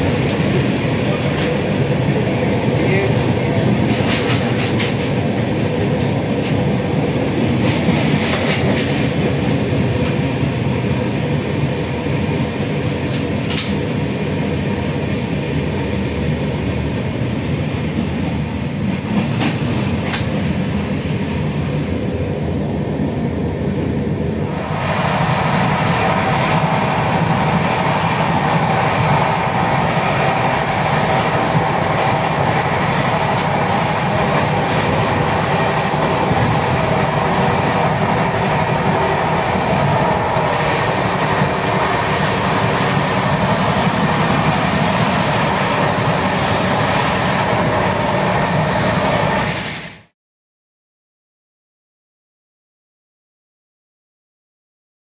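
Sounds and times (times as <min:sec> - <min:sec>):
rail clatter: 0:00.0 - 0:10.7, 0:13.0 - 0:14.0, 0:18.9 - 0:20.7, 0:24.6 - 0:49.7
train wheels rumbling on rails: 0:00.0 - 0:50.1.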